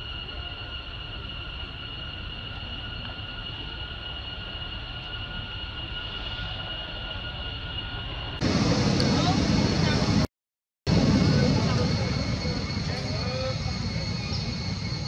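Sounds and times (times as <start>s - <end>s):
low rumble: 7.2s - 10.3s, 10.9s - 15.0s
loud noisy sound: 8.4s - 10.3s, 10.9s - 15.0s.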